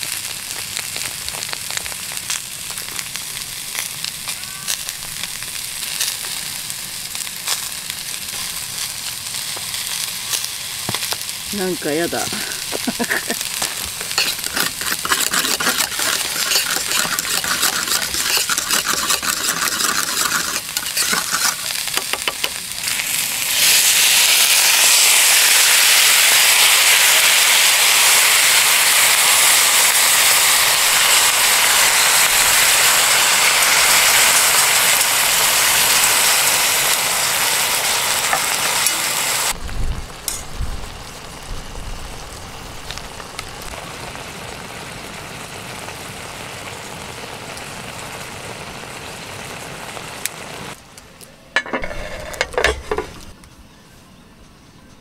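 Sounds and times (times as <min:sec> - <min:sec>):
sauce sizzling in hot pan: 0:00.0 - 0:50.8
utensil scraping steel cup: 0:14.1 - 0:21.7, 0:51.6 - 0:53.3.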